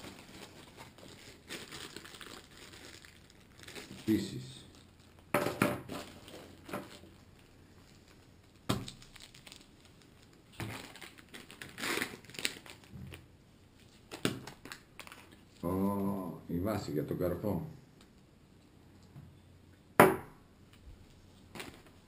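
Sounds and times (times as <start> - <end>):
plastic bags crinkling: 0.0 - 15.6, 21.4 - 22.0.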